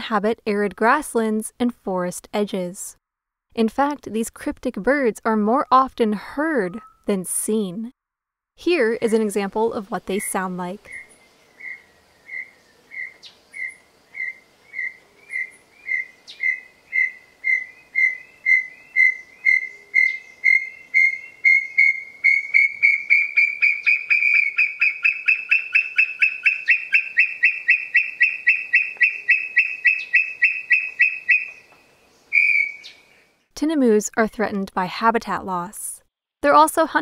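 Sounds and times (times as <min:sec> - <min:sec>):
bird whistled call: 0:10.9 - 0:33.1.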